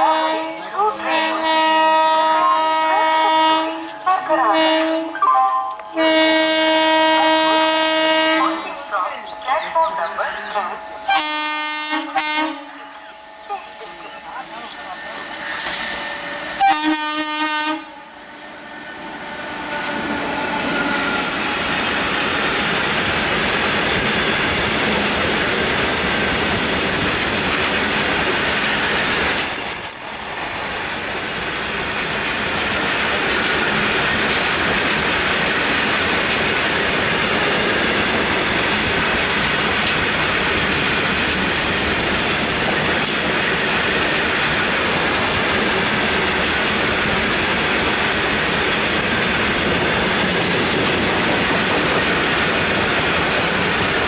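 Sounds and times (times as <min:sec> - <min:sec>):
locomotive horn blast: 0:00.0 - 0:18.4
train wheels running on rails: 0:00.0 - 0:54.0.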